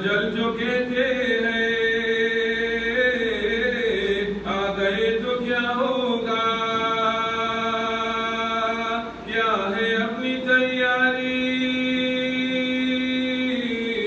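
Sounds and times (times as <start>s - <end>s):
man chanting unaccompanied: 0.0s - 14.0s.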